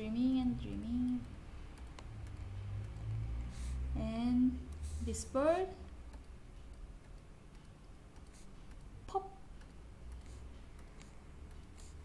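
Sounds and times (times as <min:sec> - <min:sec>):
low room hum: 0:00.0 - 0:12.0
faint computer clicks: 0:00.6 - 0:03.4.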